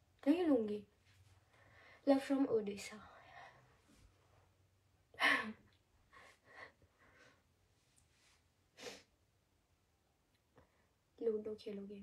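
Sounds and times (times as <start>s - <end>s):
faint breaths: 1.3s - 2.1s, 6.1s - 9.1s.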